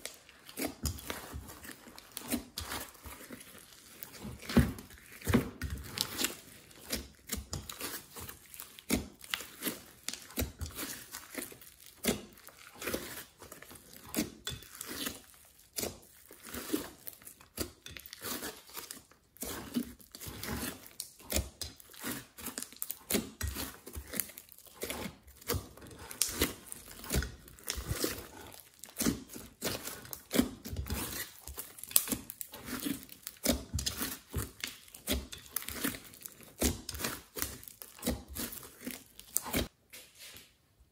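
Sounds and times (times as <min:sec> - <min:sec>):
slime being kneaded and squeezed: 0:00.0 - 0:39.8.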